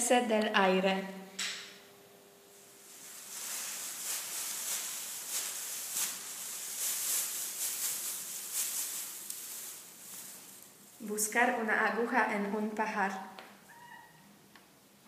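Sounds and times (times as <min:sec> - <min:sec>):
shredded paper rustling: 0:02.8 - 0:11.0.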